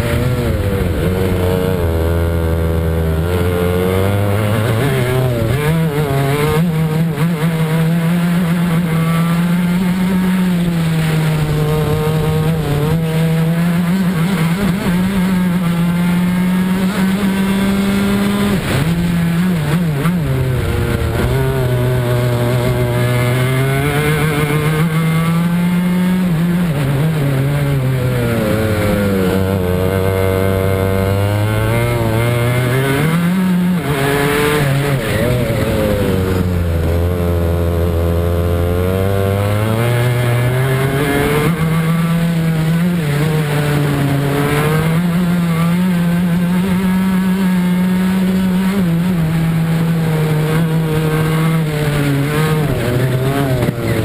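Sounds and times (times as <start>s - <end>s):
racing kart engine: 0.0s - 54.0s.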